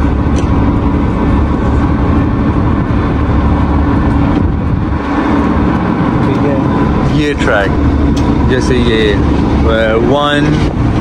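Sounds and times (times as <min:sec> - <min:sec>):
constant hum: 0:00.0 - 0:11.0
low engine rumble: 0:00.0 - 0:11.0.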